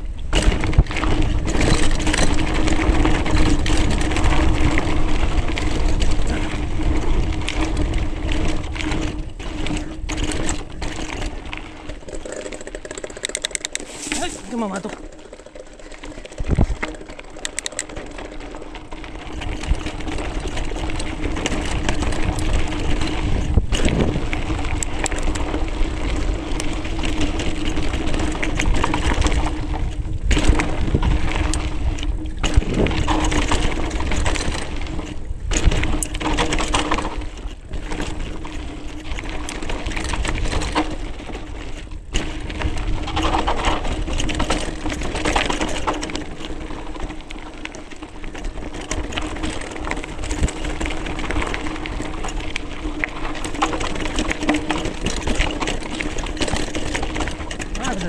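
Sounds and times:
bike knocks and rattles: 0:00.0 - 0:58.0
wind rumbling on microphone: 0:00.0 - 0:58.0
tyres crunching over gravel: 0:13.8 - 0:58.0.

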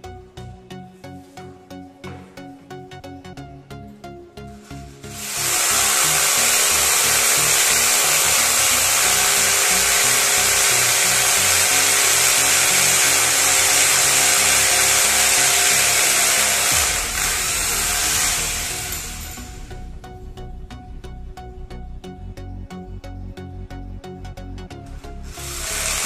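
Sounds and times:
hammer drill boring into masonry: 0:05.1 - 0:19.7, 0:25.2 - 0:26.0.

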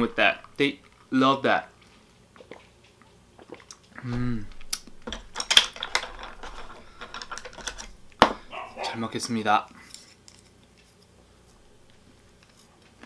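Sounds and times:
short falling vocal sound: 0:04.0 - 0:04.5.

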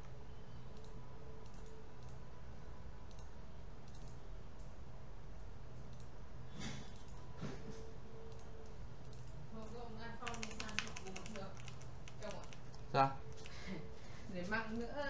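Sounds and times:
low room hum: 0:00.0 - 0:15.0
computer mouse clicking: 0:00.8 - 0:02.2, 0:03.1 - 0:04.7, 0:05.8 - 0:06.1, 0:06.9 - 0:07.2, 0:08.3 - 0:13.6.

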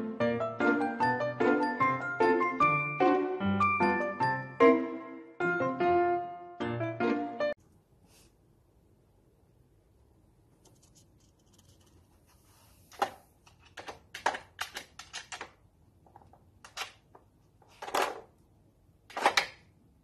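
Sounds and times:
plastic puzzle feeder clattering: 0:12.9 - 0:18.4, 0:19.1 - 0:19.6.

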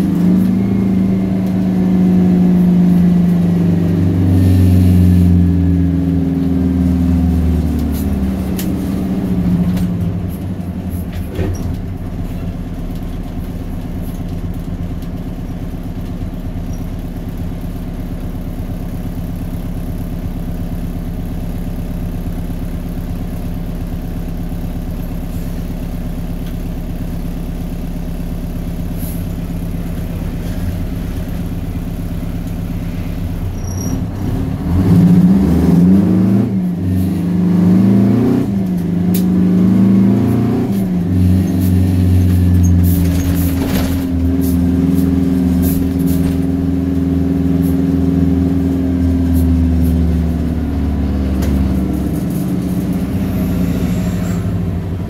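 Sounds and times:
diesel truck engine revving: 0:00.0 - 0:13.9, 0:28.2 - 0:55.0.

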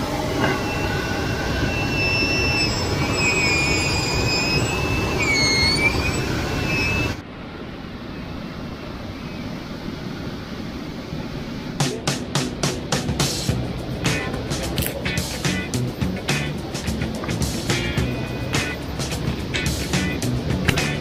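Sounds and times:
steady hiss: 0:07.4 - 0:21.0.

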